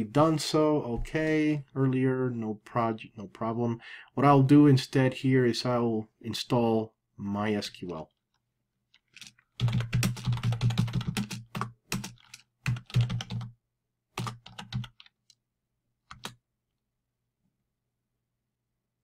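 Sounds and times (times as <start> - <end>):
typing on keyboard: 9.0 - 13.6, 14.2 - 15.4, 16.1 - 16.4.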